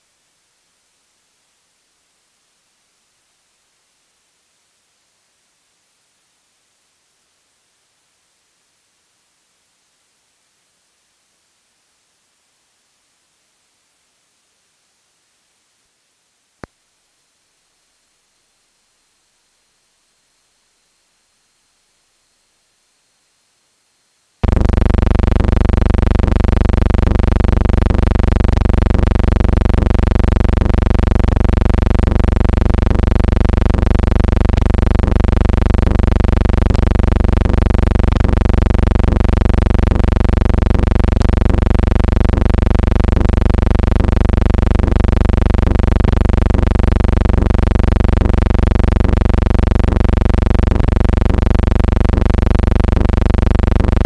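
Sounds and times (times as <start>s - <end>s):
loud buzzing drone: 24.4s - 54.0s.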